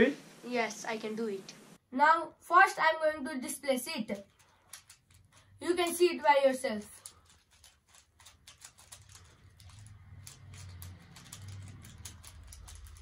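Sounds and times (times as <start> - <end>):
puzzle cube clicking: 6.9 - 13.0.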